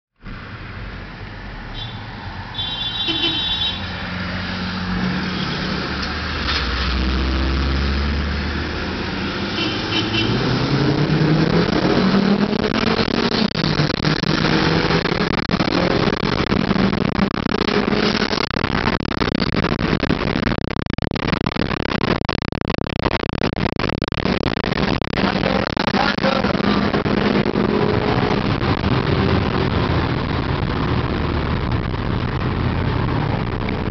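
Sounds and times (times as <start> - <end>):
wind and road noise: 0.2 - 33.9
car engine accelerating: 3.9 - 20.4, 24.8 - 33.9.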